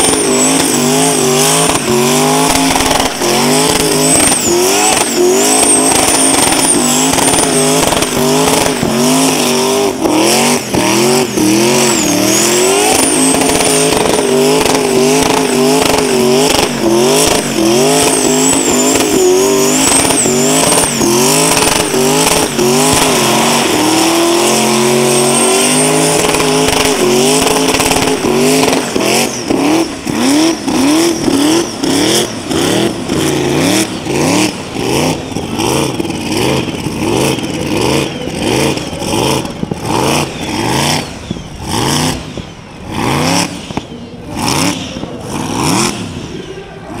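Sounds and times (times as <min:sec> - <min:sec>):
tyres squealing: 0:00.0 - 0:36.0
engine revving at high revs: 0:00.0 - 0:46.4.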